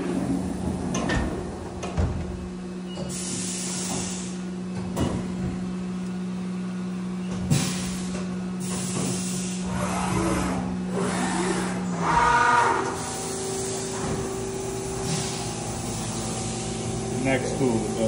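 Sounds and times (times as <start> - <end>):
coolant spraying hiss: 3.1 - 4.4, 7.5 - 9.7, 13.0 - 18.0
milling machine spindle hum: 5.6 - 18.0.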